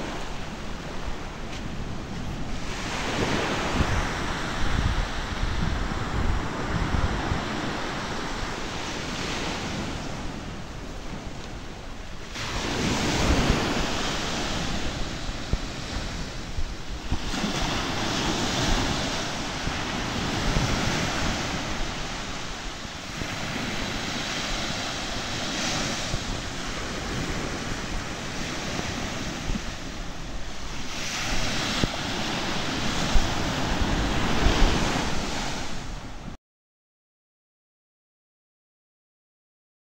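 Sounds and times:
small waves washing onto sand: 0.0 - 36.4
wind buffeting microphone: 0.0 - 36.4.

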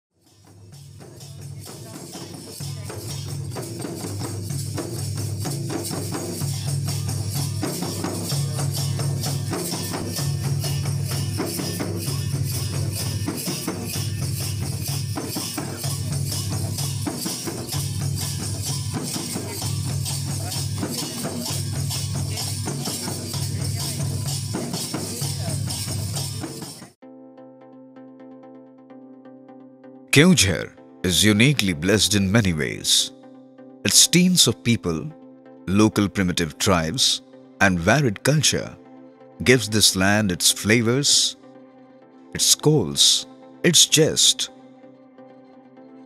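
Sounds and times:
shaken hand percussion: 0.5 - 27.0, 33.9 - 35.1, 39.4 - 41.4.

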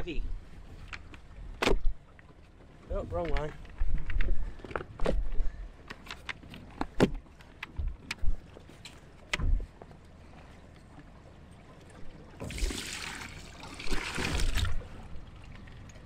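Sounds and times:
water pouring into plastic bucket: 12.4 - 14.8.

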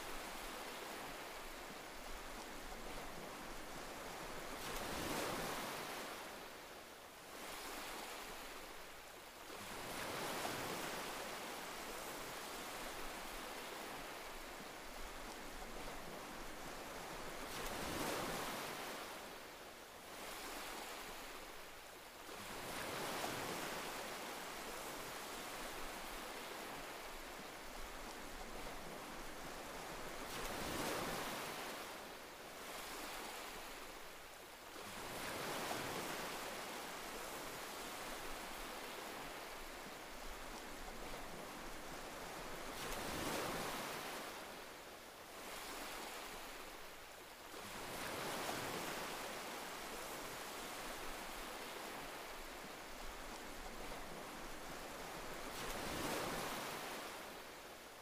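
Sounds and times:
waves breaking: 47.5 - 57.5.

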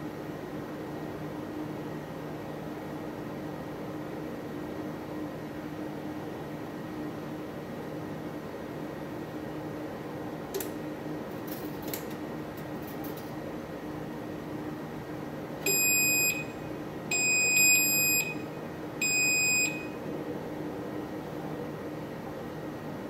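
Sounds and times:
toaster beeps: 15.6 - 20.0.

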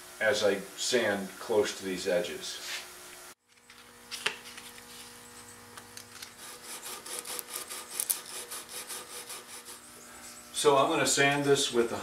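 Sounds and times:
faint steady hum: 0.0 - 12.0
sandpaper rubbing on wood: 6.4 - 9.9.

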